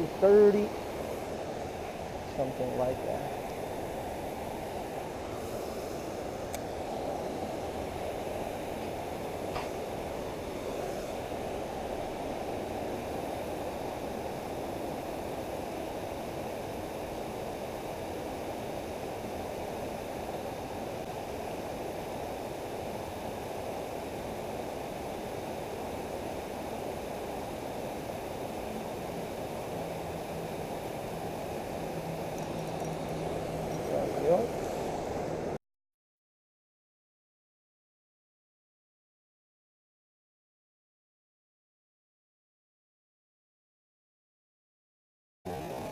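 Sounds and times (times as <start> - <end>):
creek water running over rocks: 0.0 - 35.2.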